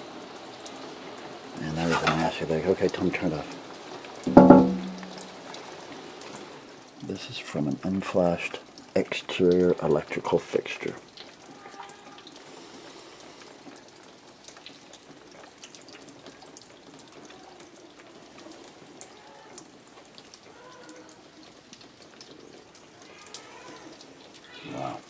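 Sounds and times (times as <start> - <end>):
water dripping: 1.5 - 7.2, 8.5 - 25.0
water running: 4.3 - 5.5.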